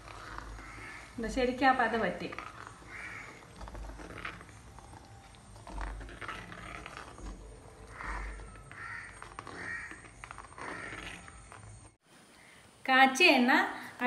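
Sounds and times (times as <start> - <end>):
crows cawing: 0.1 - 1.2, 2.6 - 4.3, 7.8 - 11.4.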